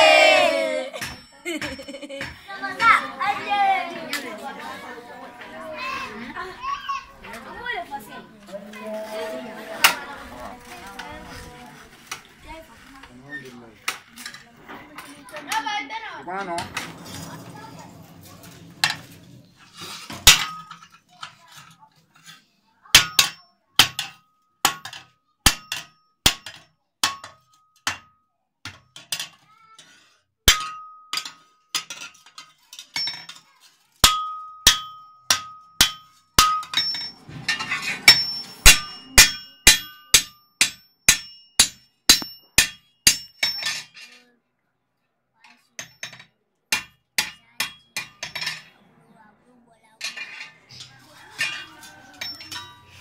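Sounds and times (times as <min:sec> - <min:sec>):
hammer striking hot metal on anvil: 0:34.0 - 0:43.6.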